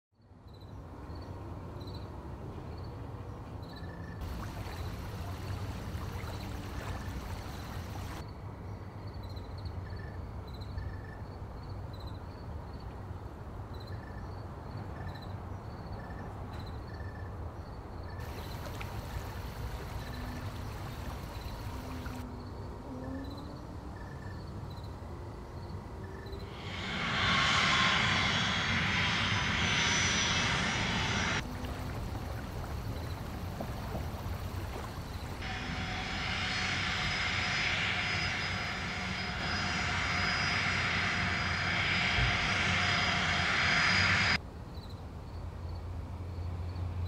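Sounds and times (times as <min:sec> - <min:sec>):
bright hiss: 0:04.2 - 0:08.2, 0:18.2 - 0:22.2, 0:26.5 - 0:44.4
low hiss and rumble: 0:04.2 - 0:08.2, 0:18.2 - 0:22.4, 0:26.3 - 0:44.4.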